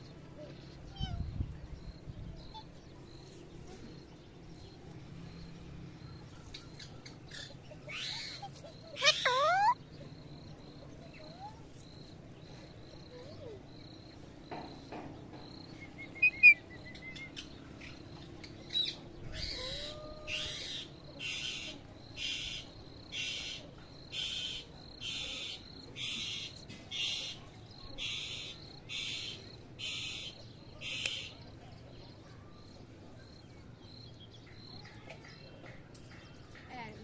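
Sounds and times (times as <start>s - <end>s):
parakeet calling: 9.0s - 9.8s.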